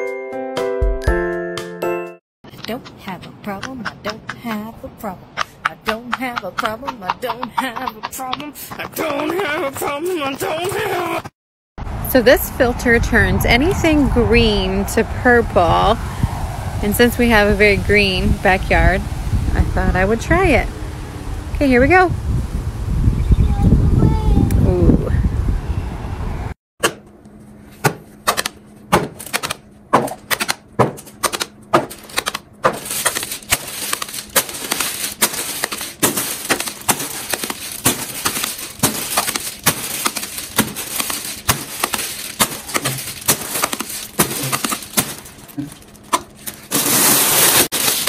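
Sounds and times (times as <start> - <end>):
sharp taps and clicks: 2.5 - 4.7, 5.3 - 9.9
rustling noise: 31.9 - 48.0.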